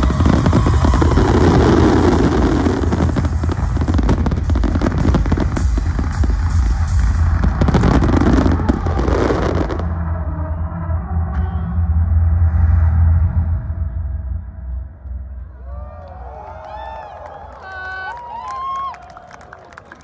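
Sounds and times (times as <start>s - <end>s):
fireworks crackling: 0.0s - 9.9s
low rumble of fireworks booms: 0.0s - 10.1s.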